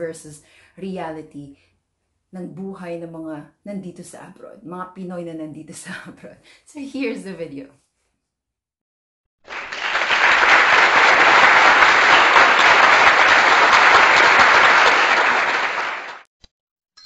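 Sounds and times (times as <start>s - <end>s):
crowd applause: 9.4s - 16.3s.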